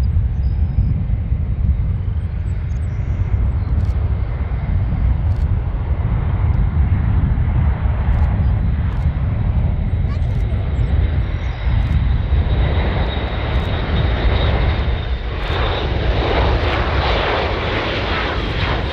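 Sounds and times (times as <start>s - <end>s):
turboprop aircraft drone: 0.0s - 18.9s.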